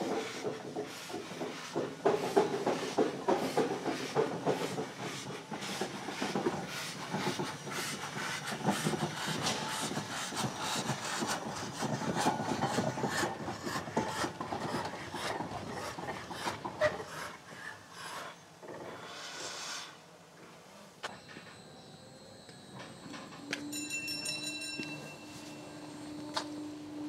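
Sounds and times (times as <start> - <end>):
cogwheel train clattering: 0.0 - 17.3
hiss: 17.1 - 20.2.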